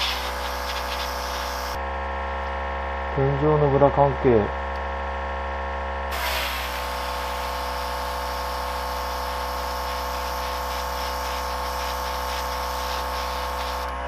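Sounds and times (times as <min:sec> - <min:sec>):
airbrush hissing: 0:00.0 - 0:01.8, 0:06.1 - 0:13.9
air compressor humming: 0:00.0 - 0:14.0.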